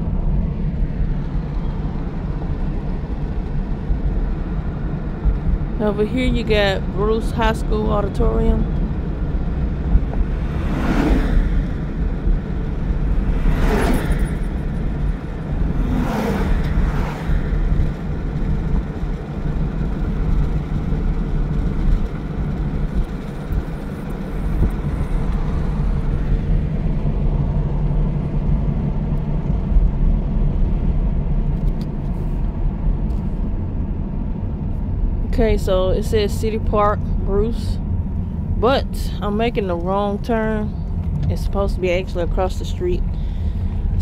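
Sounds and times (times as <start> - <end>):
car engine and tyre rumble: 0.0 - 44.0
passing whooshes: 9.8 - 18.0.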